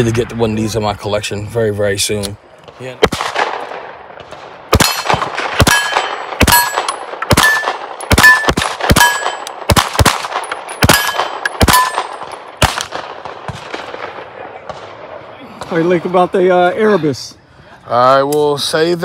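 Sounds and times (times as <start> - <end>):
pistol shots: 3.0 - 15.1.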